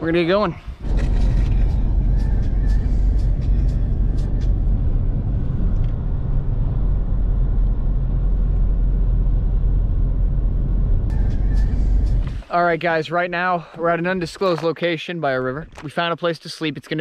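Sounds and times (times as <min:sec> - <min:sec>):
wind buffeting microphone: 0:00.0 - 0:12.5.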